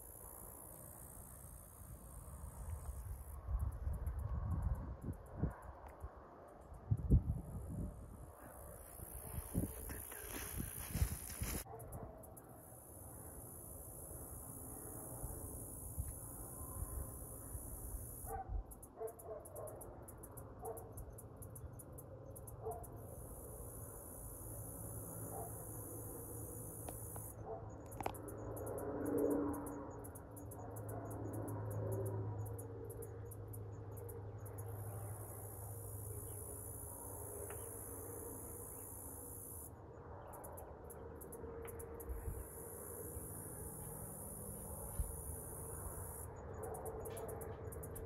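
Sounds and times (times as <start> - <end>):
crickets chirping: 0.0 - 48.0
distant highway traffic rumble: 0.0 - 48.0
distant dogs barking: 9.2 - 12.3, 18.2 - 19.9, 20.6 - 21.0, 22.6 - 23.0, 25.2 - 25.8, 27.2 - 28.1.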